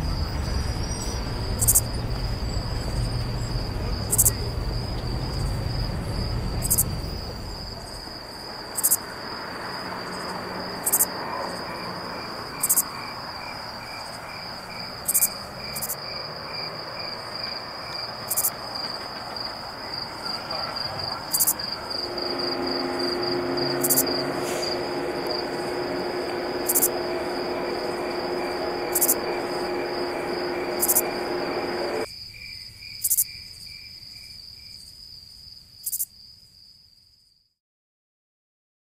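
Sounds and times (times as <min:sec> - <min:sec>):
low multi-tone hum: 0:00.0 - 0:13.0, 0:20.3 - 0:32.1
insects chirping trill: 0:00.0 - 0:37.2.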